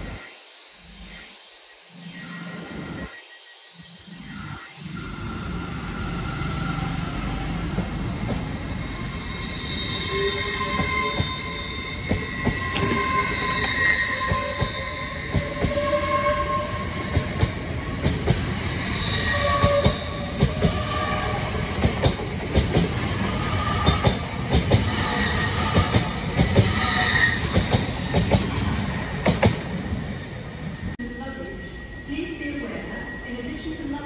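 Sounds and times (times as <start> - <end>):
train wheels rumbling on rail: 6.0 - 30.2
high-pitched wheel squeals: 8.6 - 17.2, 18.6 - 21.6, 24.8 - 28.2.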